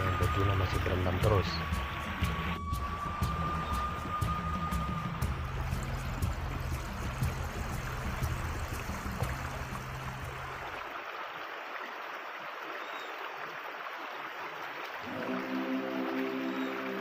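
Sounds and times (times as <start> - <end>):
low hum: 0.0 - 10.8
rocky stream trickling: 0.0 - 17.0.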